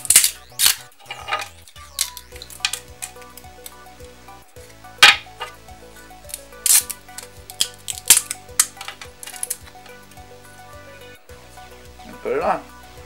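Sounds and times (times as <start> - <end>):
plastic snapping and crackling: 0.0 - 4.2, 5.0 - 5.6, 6.3 - 10.0
soft background music: 0.0 - 13.0.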